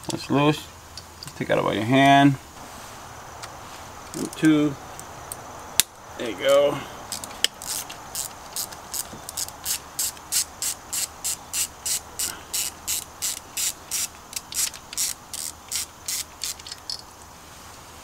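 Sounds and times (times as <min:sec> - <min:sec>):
ratchet wrench clicking: 0:07.1 - 0:17.1.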